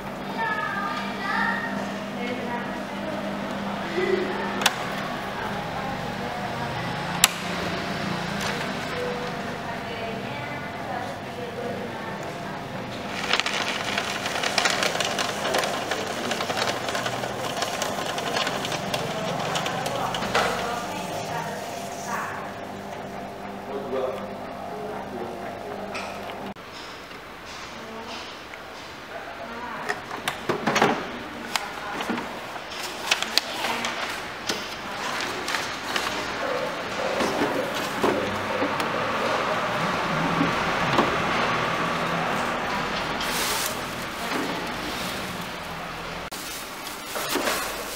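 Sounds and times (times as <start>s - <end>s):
paper shredder cutting paper: 6.8s - 9.6s, 12.8s - 22.3s, 34.8s - 47.9s.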